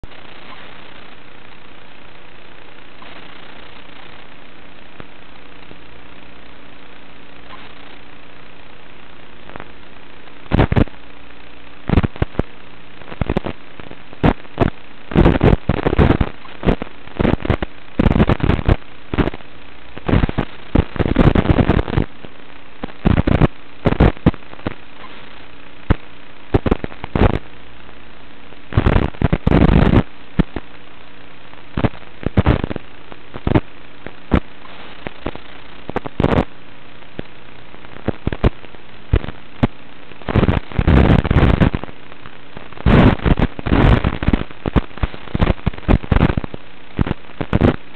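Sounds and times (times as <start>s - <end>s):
bursts of static crackle: 0.0s - 47.9s
steady low hum: 0.0s - 47.9s.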